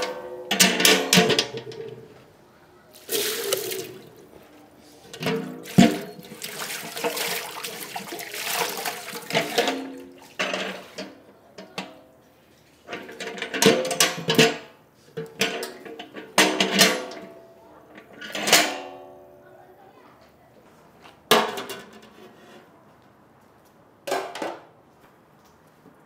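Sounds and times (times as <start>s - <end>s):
water running and splashing: 3.0s - 4.4s, 5.6s - 10.4s.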